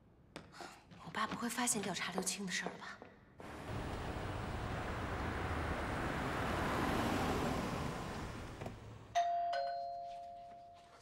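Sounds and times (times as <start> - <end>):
car pulling up: 3.4 - 9.1
doorbell chiming ding-dong: 9.2 - 11.0.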